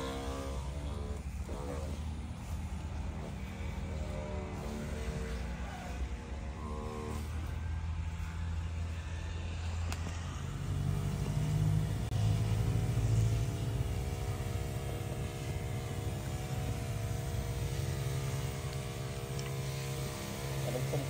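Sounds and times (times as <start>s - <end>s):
liquid spraying: 0.0s - 5.9s, 10.6s - 21.0s
sprayer pump mechanical drone: 0.0s - 21.0s.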